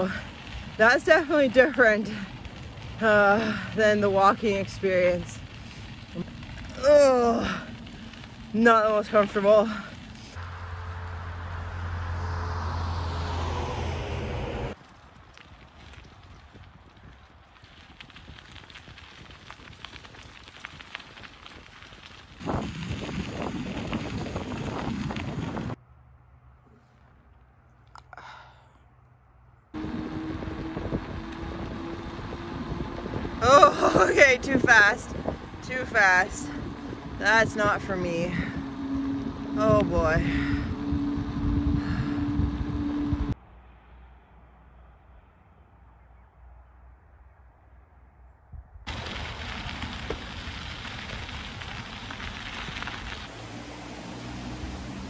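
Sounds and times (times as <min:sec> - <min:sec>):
bicycle tyres on wet road: 0:00.0 - 0:28.8, 0:29.8 - 0:44.1, 0:48.9 - 0:55.0
faint low rumble: 0:00.0 - 0:53.3
wind rushing on microphone: 0:22.3 - 0:25.8, 0:29.8 - 0:43.4.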